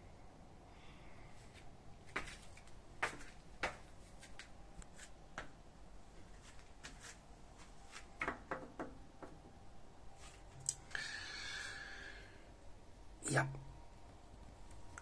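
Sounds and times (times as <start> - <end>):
faint hiss: 10.1 - 15.0.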